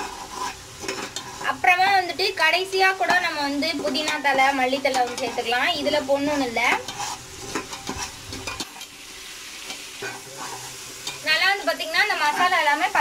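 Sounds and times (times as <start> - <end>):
ladle scraping pot bottom: 0.0 - 1.6, 6.7 - 9.0
paste sizzling in oil: 0.0 - 13.0.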